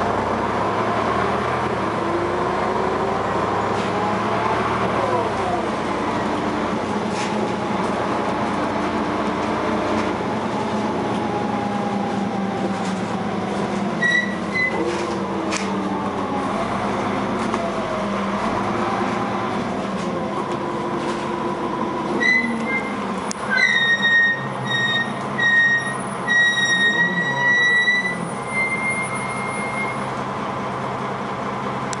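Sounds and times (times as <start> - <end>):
bus engine and gearbox whine: 0.0 - 32.0
high-pitched squeal: 14.0 - 15.0, 22.1 - 30.1.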